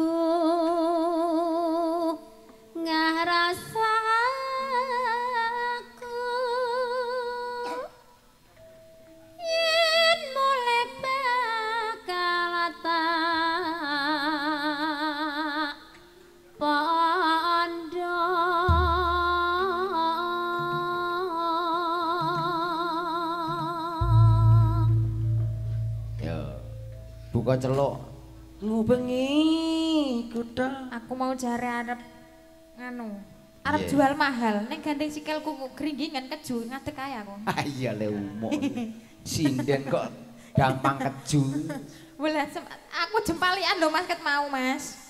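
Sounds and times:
woman singing into a microphone: 0.0s - 8.0s, 9.4s - 16.0s, 16.6s - 25.0s, 28.6s - 32.1s, 32.8s - 37.0s
deep low note: 18.7s - 20.0s, 24.0s - 29.4s
low instrumental notes: 18.7s - 20.2s, 24.0s - 30.6s.

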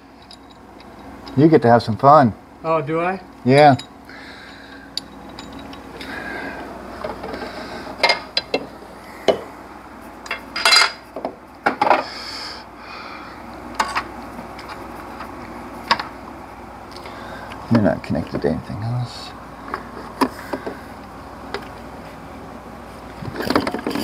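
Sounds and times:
metal tools clinking on engine parts: 0.2s - 1.4s, 3.5s - 4.0s, 5.0s - 6.1s, 10.3s - 11.1s.

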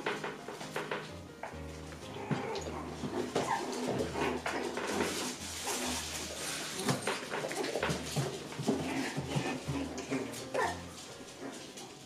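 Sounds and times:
paws scuffling and knocking: 0.0s - 12.0s
puppy whines: 2.0s - 4.7s, 8.7s - 11.6s.

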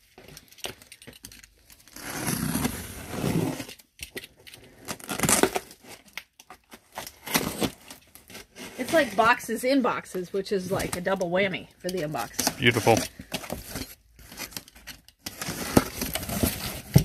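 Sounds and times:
cardboard rustling and tearing: 1.6s - 9.4s, 12.2s - 17.0s.

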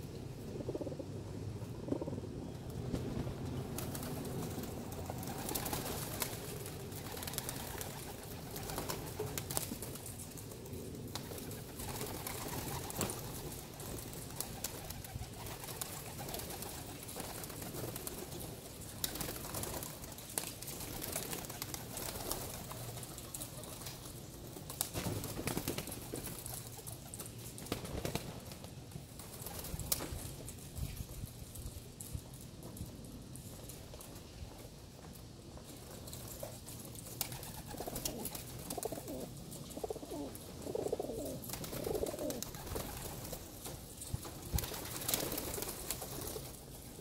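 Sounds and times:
pigeons cooing: 0.0s - 9.5s, 37.3s - 43.0s.

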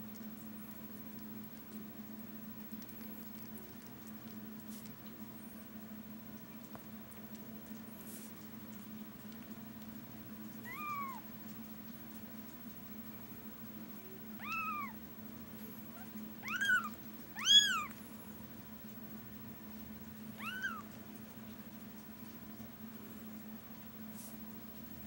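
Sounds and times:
low steady hum: 0.0s - 25.0s
kitten mewing: 10.6s - 11.3s, 14.4s - 15.0s, 15.9s - 18.0s, 20.4s - 20.9s.

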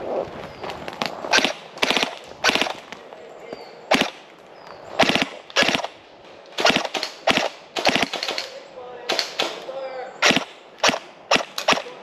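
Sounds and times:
airsoft rifle firing bursts: 1.3s - 2.8s, 3.9s - 4.2s, 5.0s - 6.0s, 6.6s - 8.5s, 10.2s - 12.0s.

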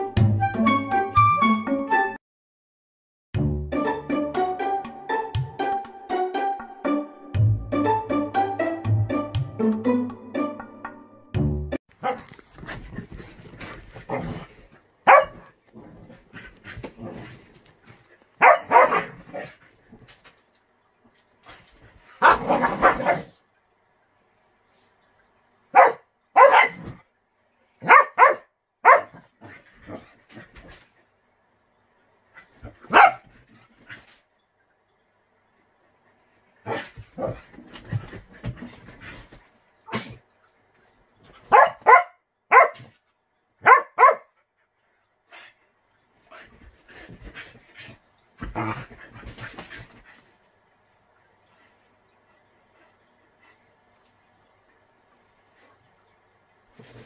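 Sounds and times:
dog barking: 12.0s - 12.3s, 15.1s - 15.5s, 18.4s - 19.5s, 22.2s - 23.3s, 25.7s - 26.8s, 27.8s - 29.2s, 32.9s - 33.2s, 41.5s - 42.9s, 43.6s - 44.3s.

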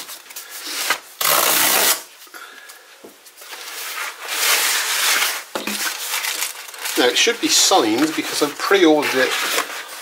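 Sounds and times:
cardboard ripping: 0.0s - 2.1s
cardboard rubbing and scraping: 3.6s - 6.3s, 6.9s - 10.0s.

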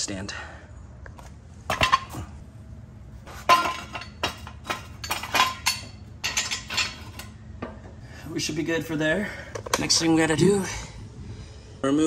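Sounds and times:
exhaust pipe clinking and rattling: 1.6s - 2.4s, 3.2s - 8.0s
jack stand knocking down: 3.3s - 7.3s.

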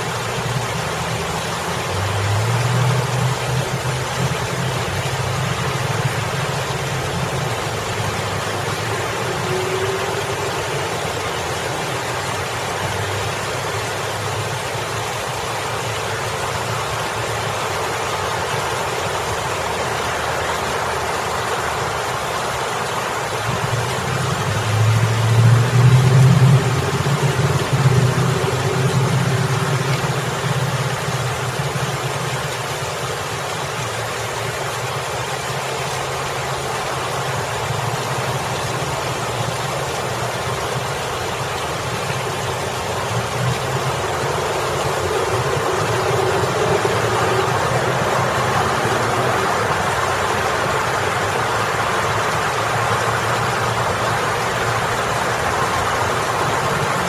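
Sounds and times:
road traffic: 0.0s - 57.0s
water spilling over fountain: 0.0s - 57.0s
vehicle engine passing: 23.5s - 57.0s.

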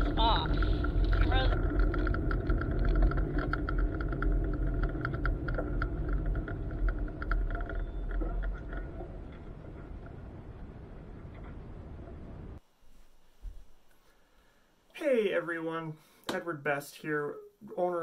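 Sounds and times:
car engine running low: 0.0s - 12.6s
sharp clicks and crackles: 0.0s - 12.6s
tyres rolling over gravel: 0.0s - 12.6s.

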